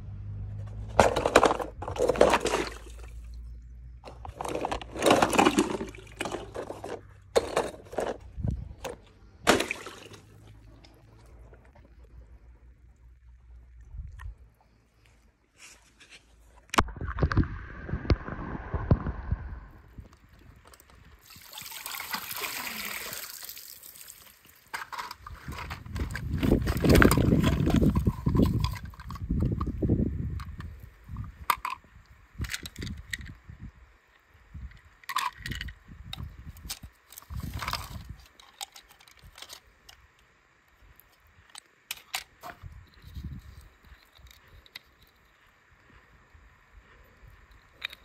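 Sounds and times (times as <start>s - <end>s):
water sloshing: 1.2s - 8.1s, 9.4s - 11.8s
water pouring off net mesh: 21.2s - 24.7s
toy cars clicking and clattering: 34.8s - 40.0s.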